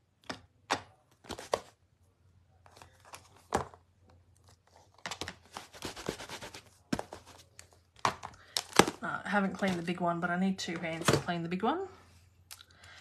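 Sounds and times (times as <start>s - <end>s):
scratchy rubbing: 5.6s - 6.7s.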